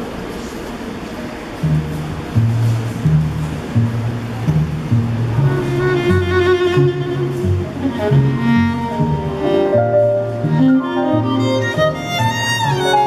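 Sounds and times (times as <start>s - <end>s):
cello low notes: 1.6s - 13.0s
violin playing: 3.2s - 13.0s.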